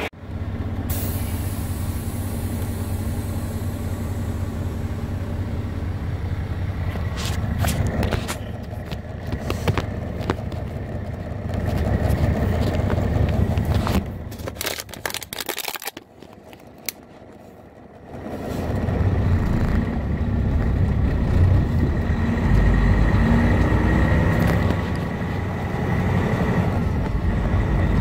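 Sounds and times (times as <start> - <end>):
diesel truck engine running: 0.0 - 28.0
sharp clicks and rattles: 6.9 - 17.4.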